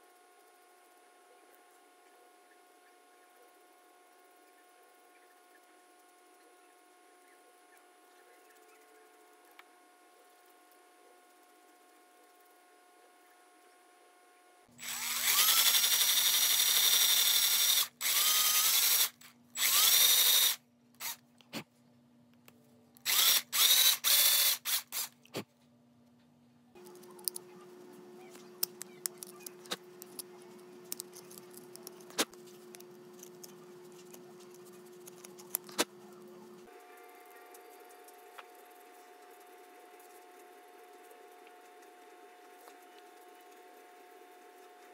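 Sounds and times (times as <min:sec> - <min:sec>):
power drill whining: 0:14.8 - 0:21.2, 0:23.1 - 0:25.1
faint steady hum: 0:19.1 - 0:44.9.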